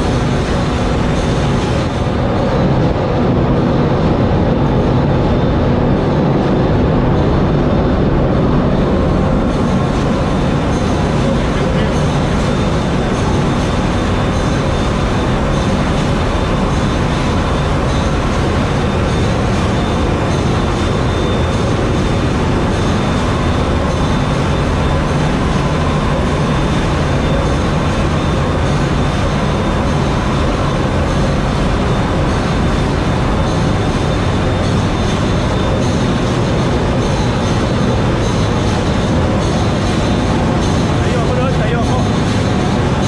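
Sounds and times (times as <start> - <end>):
faint steady whines: 0.0 - 43.0
ship engine room din: 0.0 - 43.0.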